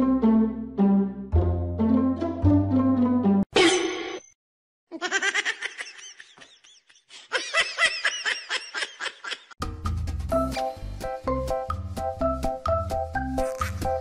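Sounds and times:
music: 0.0 - 3.5, 9.6 - 14.0.

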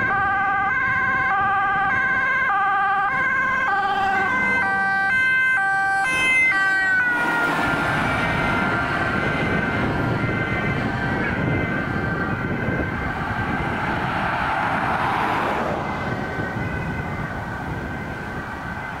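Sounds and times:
emergency sirens: 0.0 - 19.0
road traffic noise: 0.0 - 19.0
car passing close by: 7.0 - 10.2, 12.4 - 17.8.

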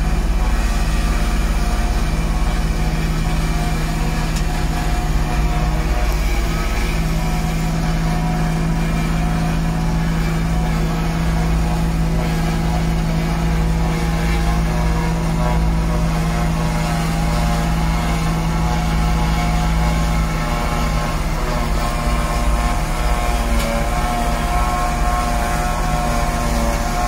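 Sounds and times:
farm machinery diesel drone: 0.0 - 27.0.

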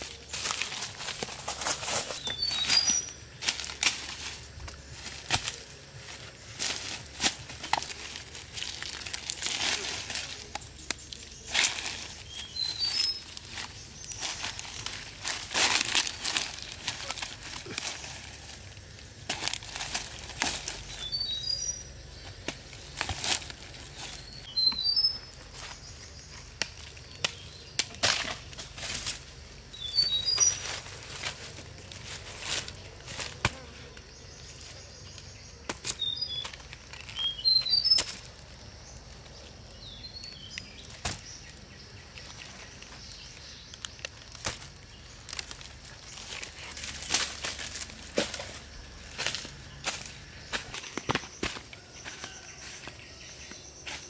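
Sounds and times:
dry leaves rustling: 0.0 - 54.0
bird chirping: 1.6 - 7.1, 7.8 - 18.3, 20.0 - 28.0, 29.6 - 31.0, 33.6 - 47.0.

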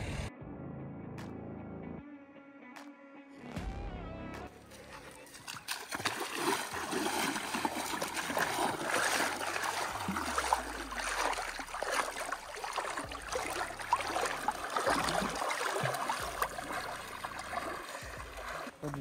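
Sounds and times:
stream water rushing: 5.0 - 18.8.

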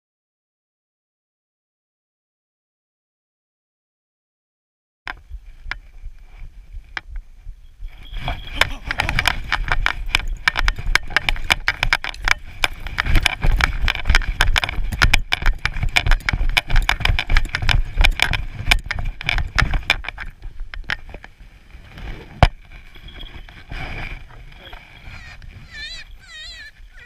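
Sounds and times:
camera jostling thumps: 8.2 - 21.3.

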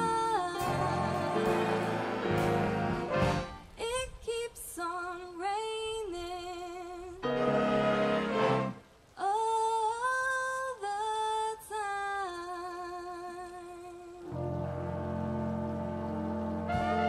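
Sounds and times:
big band playing: 0.0 - 3.8, 7.2 - 8.8, 14.4 - 17.0
woman singing with vibrato: 0.0 - 8.6, 9.2 - 14.4
horns playing loud chord: 0.6 - 3.8, 7.2 - 8.8, 14.3 - 17.0.

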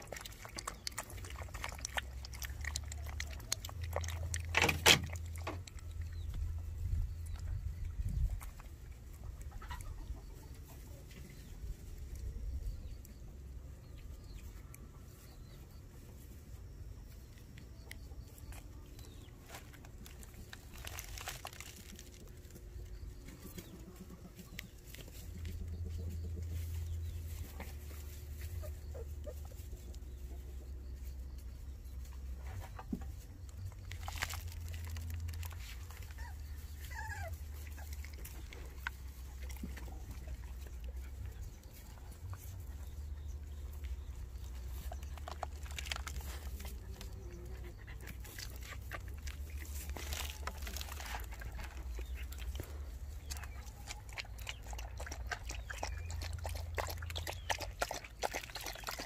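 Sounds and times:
low steady rumble: 0.0 - 58.9
rustling in grass and straw: 18.3 - 54.1
puppies squeaking: 35.5 - 40.0.

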